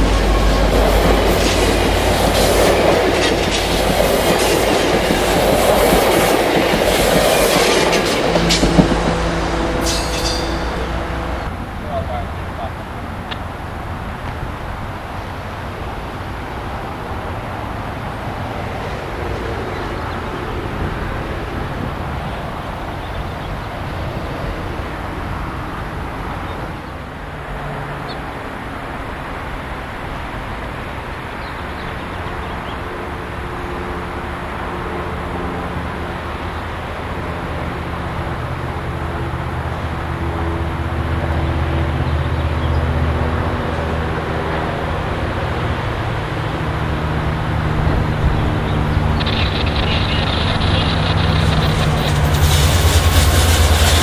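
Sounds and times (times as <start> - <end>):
diesel locomotive engine drone: 0.0 - 54.0
train rumble: 0.0 - 54.0.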